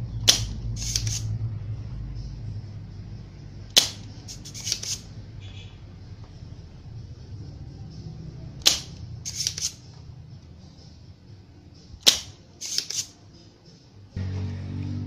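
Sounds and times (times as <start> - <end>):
desoldering pump snapping: 0.2 - 1.2, 8.6 - 9.8, 12.0 - 13.1
small tool clicks: 0.3 - 1.3, 3.8 - 5.1, 8.6 - 9.8, 12.0 - 13.2.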